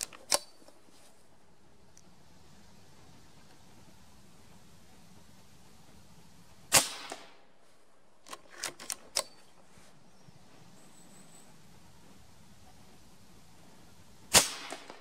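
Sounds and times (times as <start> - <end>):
rifle lever clicks: 0.0 - 0.8, 8.2 - 9.4
air rifle shot: 6.7 - 7.4, 14.3 - 15.0.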